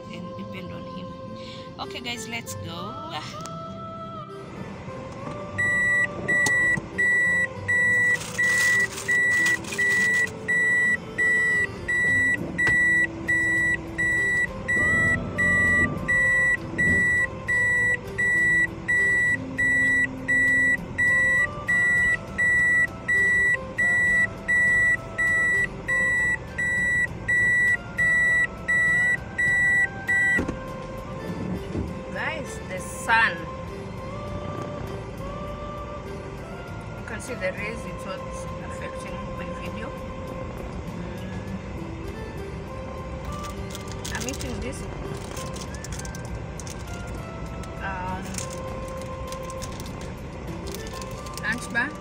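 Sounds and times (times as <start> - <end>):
car warning beeper: 5.6 - 30.5.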